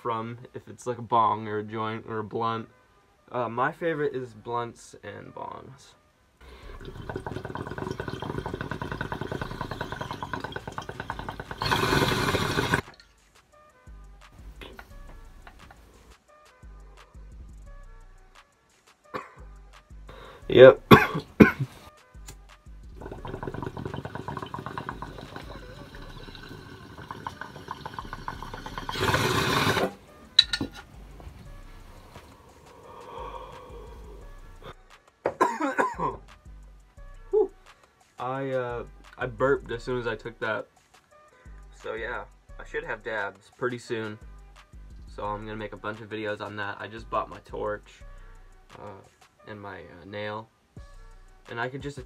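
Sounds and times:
water bong bubbling: 0:06.5 - 0:13.0, 0:22.9 - 0:30.9.

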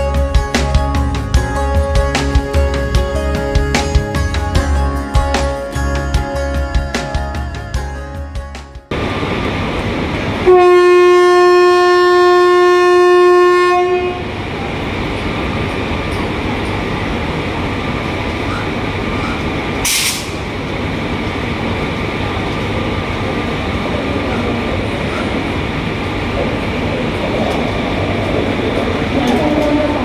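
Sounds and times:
train rumbling: 0:00.0 - 0:30.0
locomotive horn blast: 0:10.4 - 0:14.3, 0:29.2 - 0:30.0
short sharp hiss: 0:19.8 - 0:20.4.

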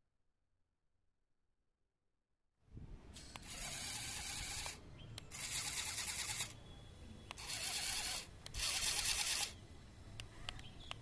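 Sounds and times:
motor clicks: 0:03.2 - 0:06.6, 0:07.3 - 0:09.6
toy car motor whirring: 0:03.4 - 0:06.6, 0:07.3 - 0:09.6.

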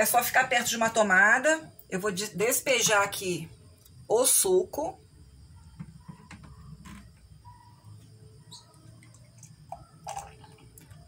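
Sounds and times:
juice trickling into a glass: 0:08.6 - 0:11.0.

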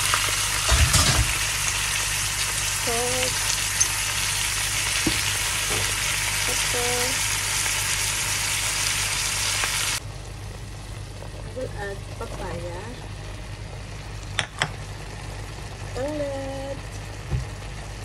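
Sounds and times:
chicken sizzling in hot oil: 0:00.0 - 0:10.0.

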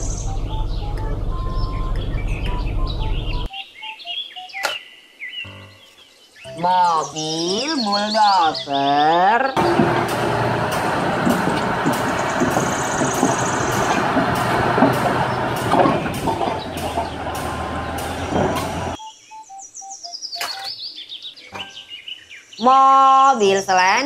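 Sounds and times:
bulldozer diesel engine running: 0:00.0 - 0:03.5, 0:09.6 - 0:19.0
faint bird chirping: 0:00.0 - 0:08.8, 0:15.2 - 0:23.4
steel tracks clanking: 0:09.6 - 0:19.0.

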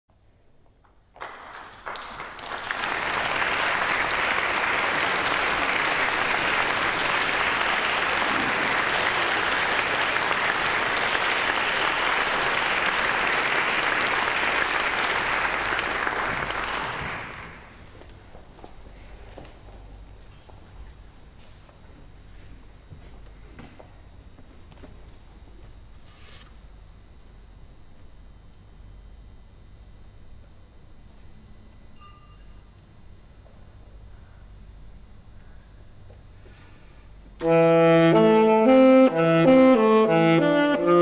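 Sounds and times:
audience applauding: 0:00.9 - 0:17.9.

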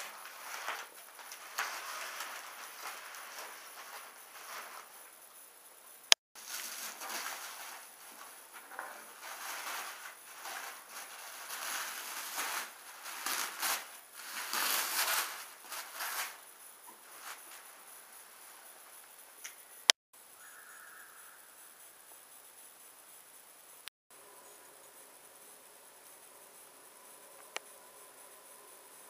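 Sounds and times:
tissue paper rustling and tearing: 0:00.0 - 0:05.0, 0:06.4 - 0:16.4, 0:17.0 - 0:18.7.

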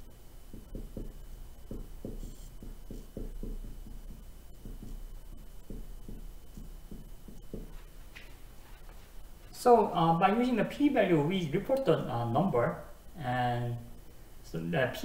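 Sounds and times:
marker writing on whiteboard: 0:00.5 - 0:08.2.

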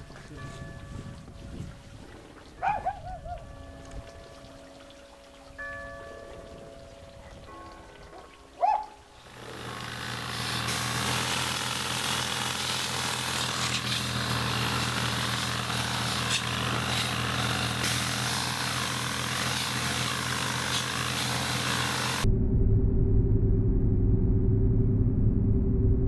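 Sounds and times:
motor hum: 0:08.7 - 0:26.0.

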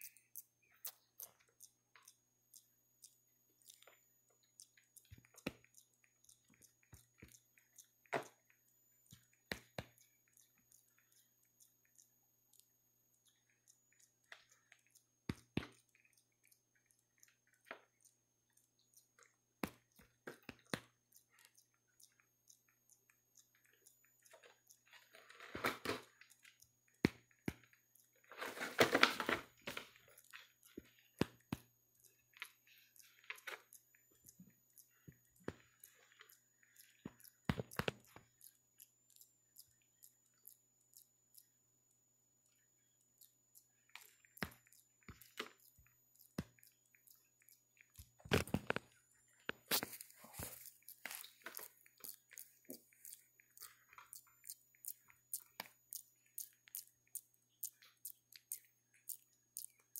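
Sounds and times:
monkey chewing cardboard: 0:23.5 - 0:41.5, 0:43.2 - 0:59.9.

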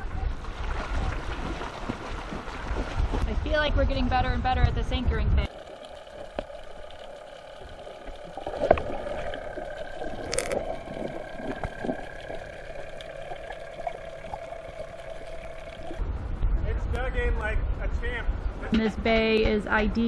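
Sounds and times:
bubbly splash: 0:00.4 - 0:03.2, 0:05.5 - 0:16.0
muffled underwater hum: 0:05.1 - 0:16.5
soft ticks and gurgles: 0:05.4 - 0:16.0.

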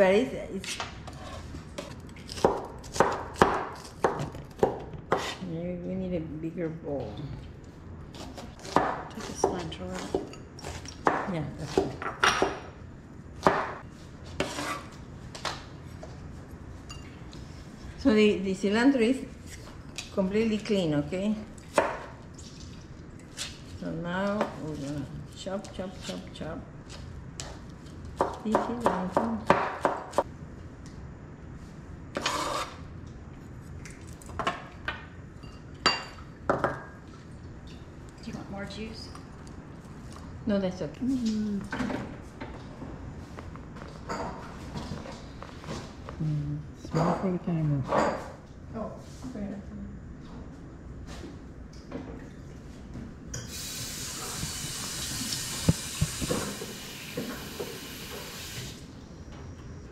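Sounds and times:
sink tap running: 0:53.5 - 0:58.8.

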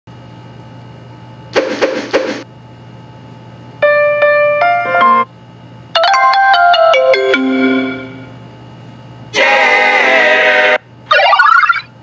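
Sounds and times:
rising electronic notes: 0:11.1 - 0:11.9.

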